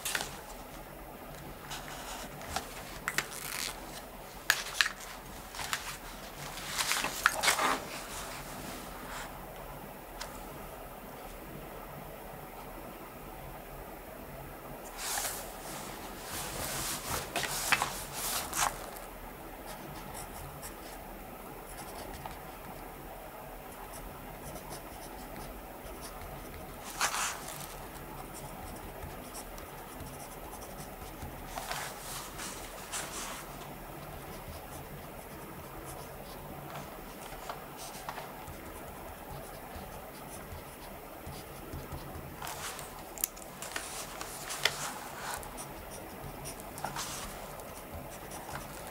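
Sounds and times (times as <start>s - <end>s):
faint room hiss: 0.0s - 48.9s
scratchy paper sounds: 1.7s - 8.5s, 14.9s - 19.0s, 23.9s - 48.9s
pen scratching on paper: 21.7s - 22.8s, 23.8s - 43.0s, 43.6s - 48.9s.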